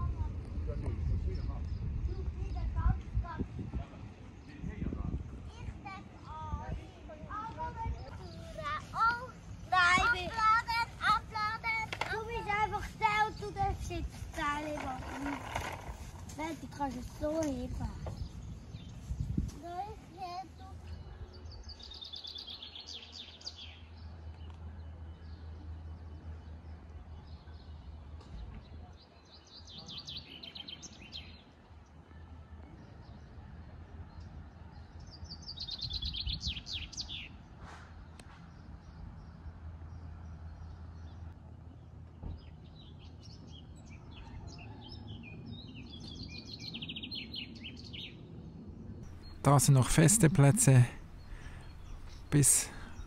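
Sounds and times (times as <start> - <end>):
low outdoor background hum: 0.0 - 53.0
songbird singing: 20.5 - 31.8, 34.1 - 37.5, 38.5 - 48.2, 49.0 - 53.0.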